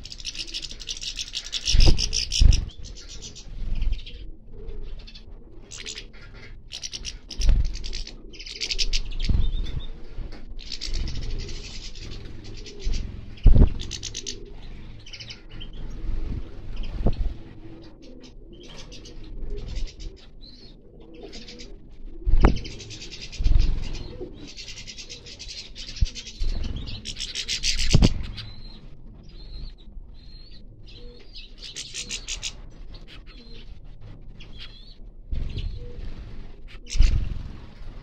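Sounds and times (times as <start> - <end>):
finches chattering and singing: 0.0 - 4.3, 5.0 - 10.0, 10.6 - 17.0, 22.4 - 33.8, 34.4 - 37.4.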